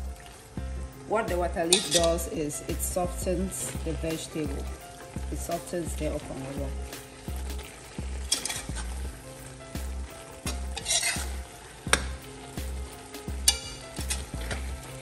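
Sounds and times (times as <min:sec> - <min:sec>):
pot sizzling: 0:00.0 - 0:15.0
spoon scraping metal pot: 0:01.7 - 0:02.3, 0:08.2 - 0:08.9, 0:10.5 - 0:12.0, 0:13.4 - 0:14.8.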